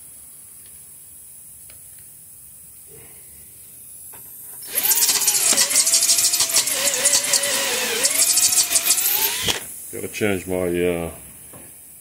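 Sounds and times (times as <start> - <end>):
cordless drill whining: 4.6 - 9.7
drill bit grinding metal: 4.6 - 9.7.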